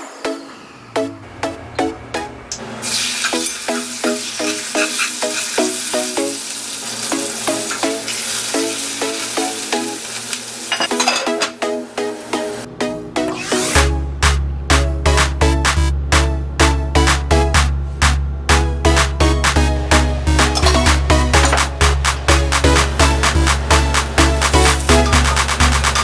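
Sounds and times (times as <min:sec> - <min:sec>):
meat sizzling in hot oil: 0:02.8 - 0:10.8.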